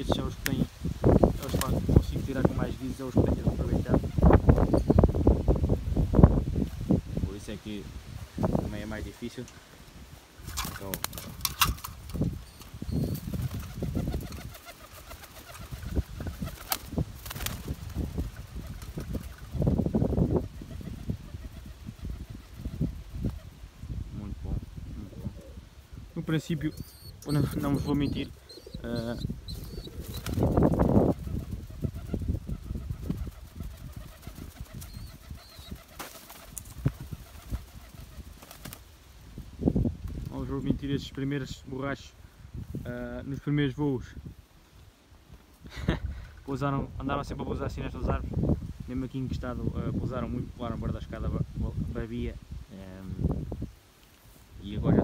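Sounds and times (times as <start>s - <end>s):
wings flapping: 1.0s - 2.5s, 10.4s - 23.6s, 26.6s - 39.0s
pigeons cooing: 12.2s - 17.0s, 18.1s - 23.6s, 24.9s - 38.4s.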